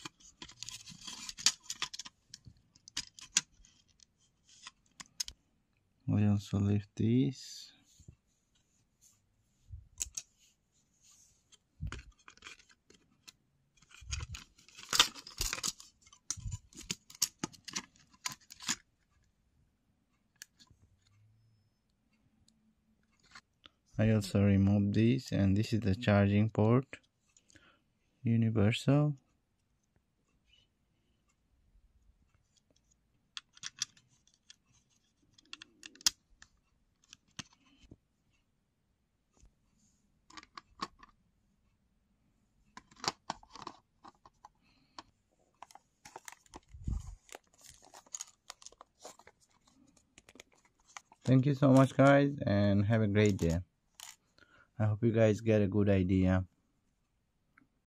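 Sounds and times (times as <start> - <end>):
plastic parts clicking and scraping: 0.0 - 5.4, 10.0 - 10.3, 11.5 - 19.3, 20.4 - 21.2, 23.0 - 23.5, 32.4 - 38.0, 40.2 - 41.2, 42.7 - 52.1, 53.2 - 54.3.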